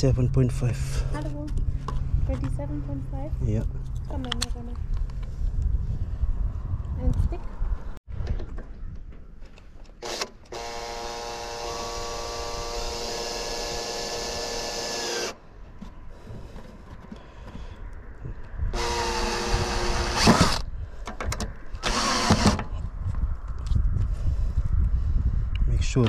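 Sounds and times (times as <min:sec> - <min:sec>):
cordless drill whining: 0:10.0 - 0:15.4, 0:18.8 - 0:20.6, 0:21.8 - 0:22.6.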